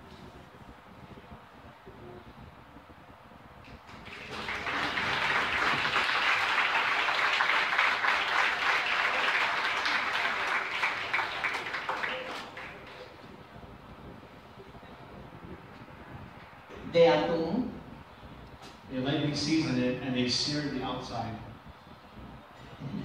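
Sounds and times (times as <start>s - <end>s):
audience applauding: 3.8s - 13.3s.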